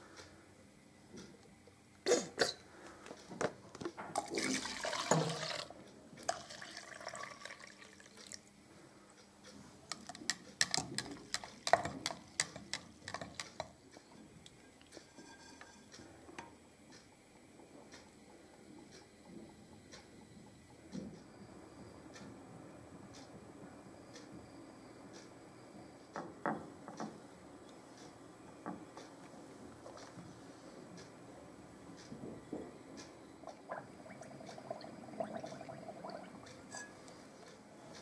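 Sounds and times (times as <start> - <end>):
water poured and splashing: 4.2 - 5.7.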